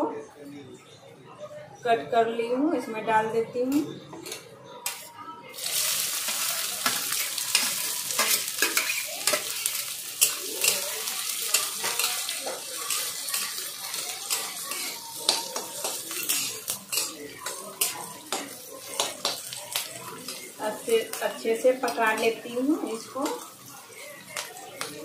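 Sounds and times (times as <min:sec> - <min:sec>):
vegetables sizzling in hot oil: 0:04.9 - 0:25.0
spatula scraping metal pan: 0:06.3 - 0:10.8.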